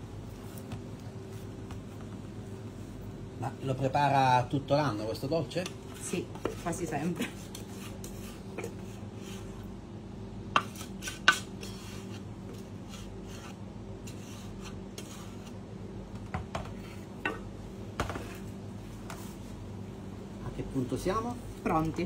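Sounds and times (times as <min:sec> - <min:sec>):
spatula scraping dough: 0:05.5 - 0:09.7, 0:10.5 - 0:15.6.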